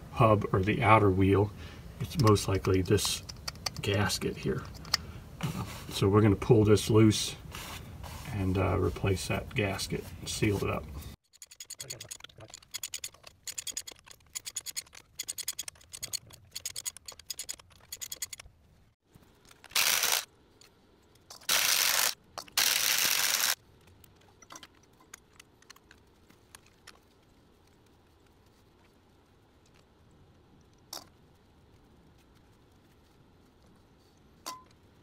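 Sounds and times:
cordless ratchet spinning: 11.2s - 18.5s, 19.7s - 20.3s, 21.5s - 23.6s
hand ratchet clicking: 11.3s - 18.5s.

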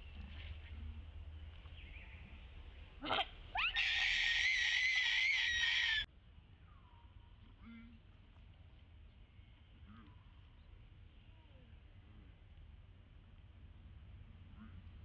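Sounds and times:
baby monkey screaming: 3.0s - 6.1s.

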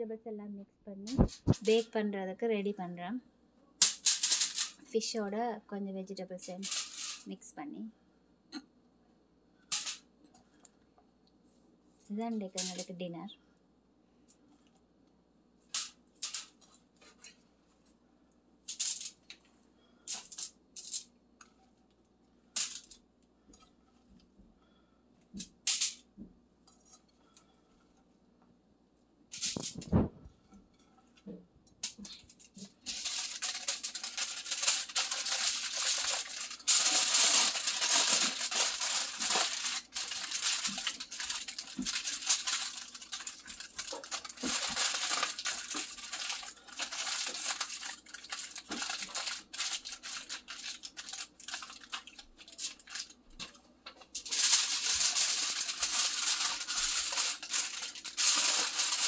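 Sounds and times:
aluminium foil crinkling: 1.1s - 2.0s, 3.8s - 5.1s, 6.4s - 7.4s, 12.4s - 13.0s, 15.7s - 17.4s, 18.7s - 19.5s, 20.1s - 21.1s, 31.1s - 59.0s.

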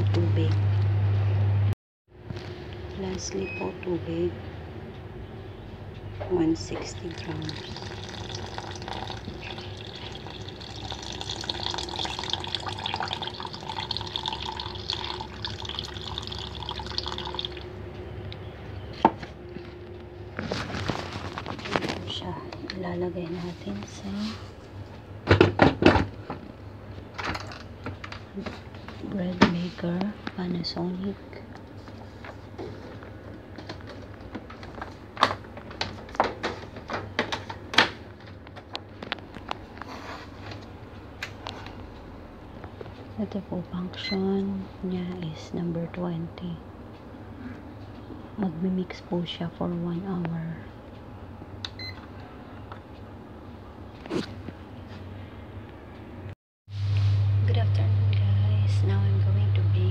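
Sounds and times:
water trickling into a pan: 6.9s - 17.7s.

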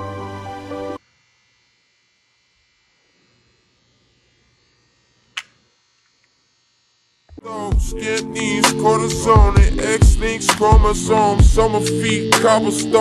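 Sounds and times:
music: 0.0s - 1.0s, 7.4s - 13.0s.

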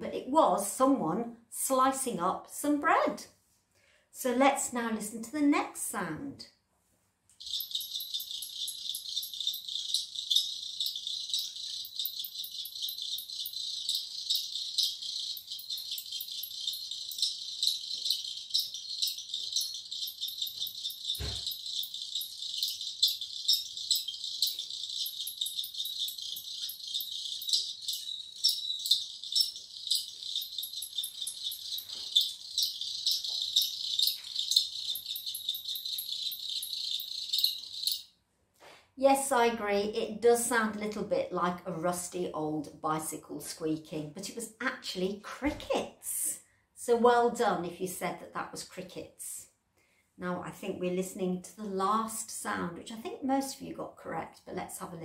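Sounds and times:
crickets chirping: 7.4s - 38.0s.

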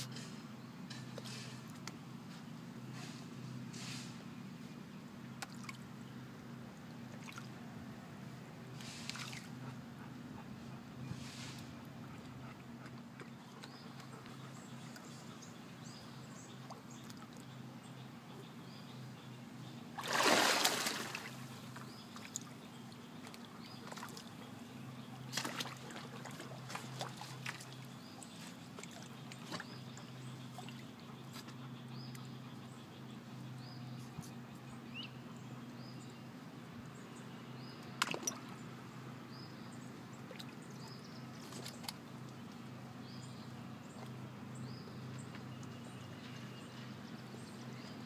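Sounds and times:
water sloshing and dripping: 6.9s - 7.6s, 20.0s - 24.4s, 25.2s - 30.9s, 38.0s - 38.6s, 40.2s - 42.6s
dog splashing in water: 20.0s - 21.4s.

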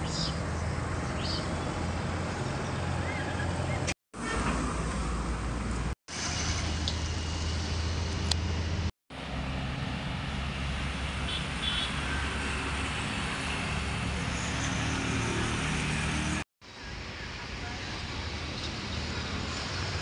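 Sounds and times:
road traffic hum: 0.0s - 20.0s.

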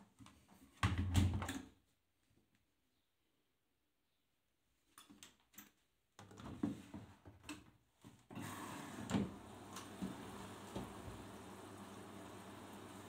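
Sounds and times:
water rushing into washing machine: 8.4s - 13.0s.

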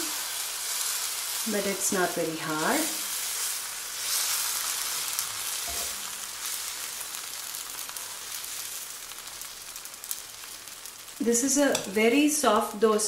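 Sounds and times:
batter sizzling on a skillet: 0.0s - 13.0s.

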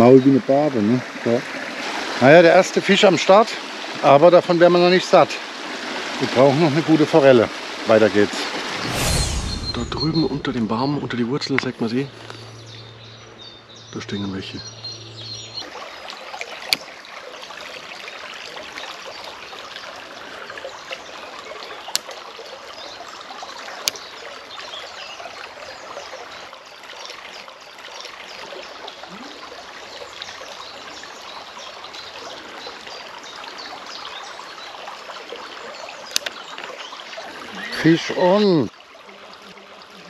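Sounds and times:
brook babbling: 0.0s - 40.0s.

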